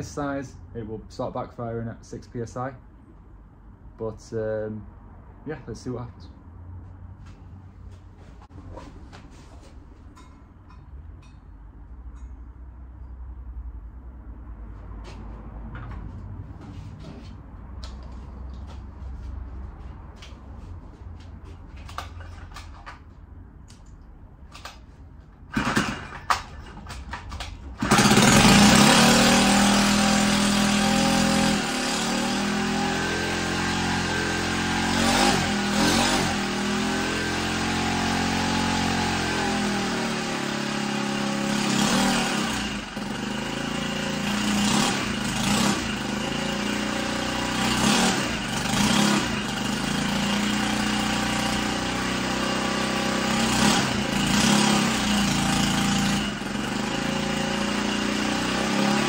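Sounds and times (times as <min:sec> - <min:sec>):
engine clattering: 0:25.5 - 0:32.3
small engine revving loudly: 0:27.8 - 0:59.0.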